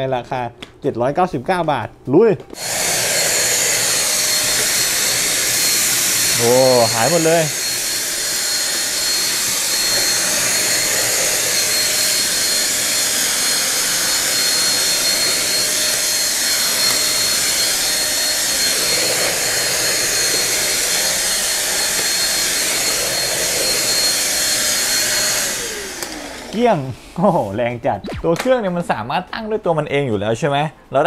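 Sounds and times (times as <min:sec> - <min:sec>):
vacuum cleaner running: 0:02.6 - 0:27.2.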